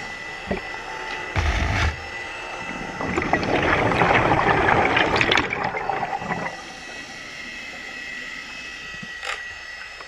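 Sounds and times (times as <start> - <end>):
air bubbles gurgling underwater: 2.6 - 6.7.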